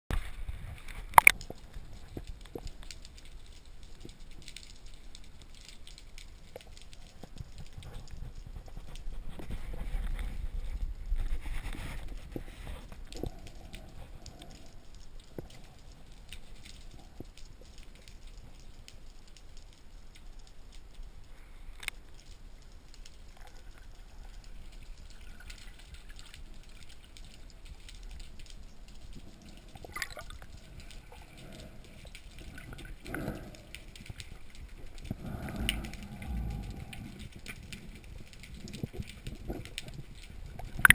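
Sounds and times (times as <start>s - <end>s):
faint clicks and crackles: 0.1s - 40.9s
low underwater rumble: 28.2s - 40.9s.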